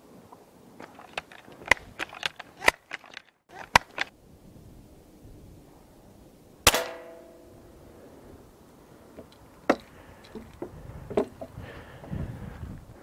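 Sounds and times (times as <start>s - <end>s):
air rifle metallic clicks: 0.8s - 4.1s
air rifle firing crack: 6.7s - 7.4s
pellet ringing on target: 6.7s - 7.5s.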